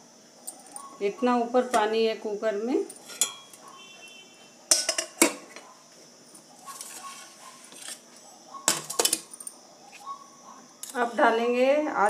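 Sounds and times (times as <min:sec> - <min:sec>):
sharp metal clinks: 0:08.9 - 0:09.6.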